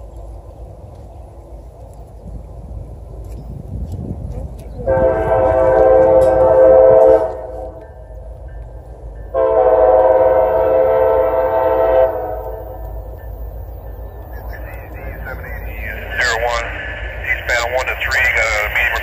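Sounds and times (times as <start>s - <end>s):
locomotive horn blasts: 4.8s - 7.9s, 9.4s - 12.9s.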